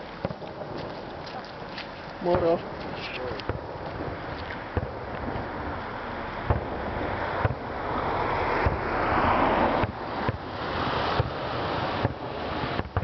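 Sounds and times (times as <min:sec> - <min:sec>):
firework bangs: 0:00.0 - 0:13.0
rushing hiss: 0:05.5 - 0:13.0.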